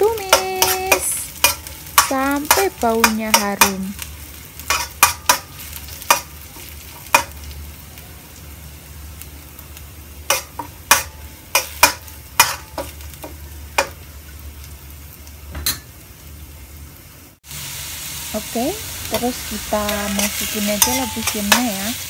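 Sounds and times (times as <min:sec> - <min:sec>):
food sizzling in hot oil: 0:00.0 - 0:22.0
metal spoon scraping a wok: 0:00.2 - 0:03.7, 0:04.6 - 0:07.4, 0:10.3 - 0:12.9, 0:19.8 - 0:22.0.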